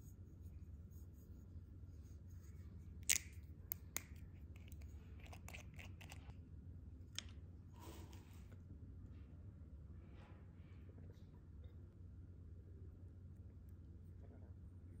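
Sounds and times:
bottle cap seal cracking: 0:03.0 - 0:04.1.

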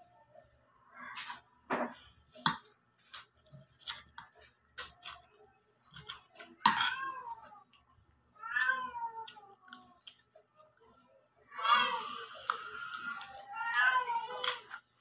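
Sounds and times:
cat meowing: 0:08.4 - 0:09.5.

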